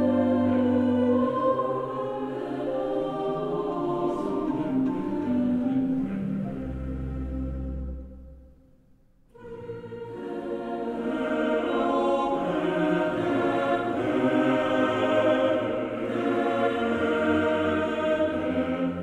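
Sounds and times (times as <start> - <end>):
music with choir-like voices: 0.0 - 8.7, 9.3 - 19.0.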